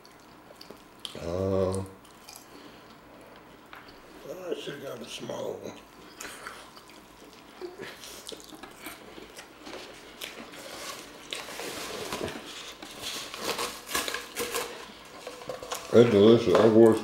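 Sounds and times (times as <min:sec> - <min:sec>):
crunchy chewing: 0:05.9 - 0:15.9
paper towel roll rustling: 0:09.7 - 0:17.0.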